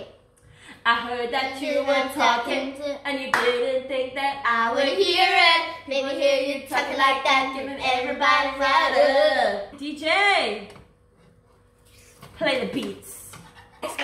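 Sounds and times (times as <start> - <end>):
hand claps: 3.3 - 3.6.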